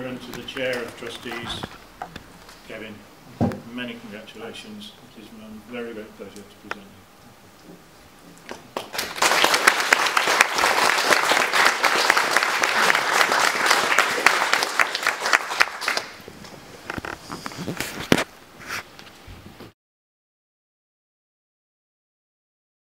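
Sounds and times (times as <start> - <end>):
audience applauding: 8.8 - 16.2.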